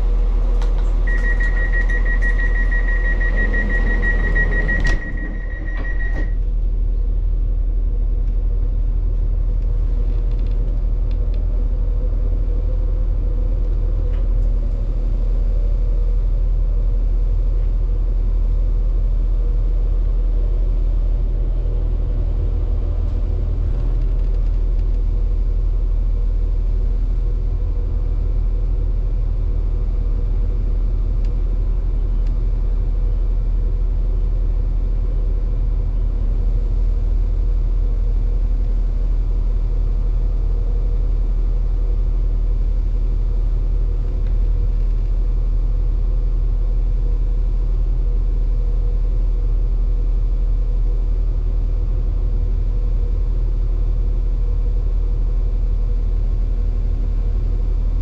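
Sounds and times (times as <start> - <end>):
faint steady hum: 0.0 - 58.0
train engine rumbling: 0.0 - 58.0.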